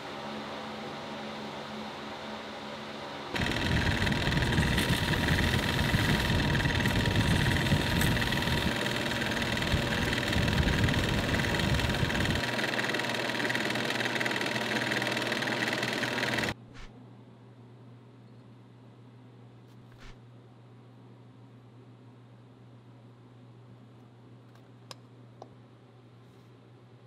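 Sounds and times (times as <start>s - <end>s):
metal lathe running: 3.4s - 16.6s
file rubbing spinning rod: 3.4s - 16.9s.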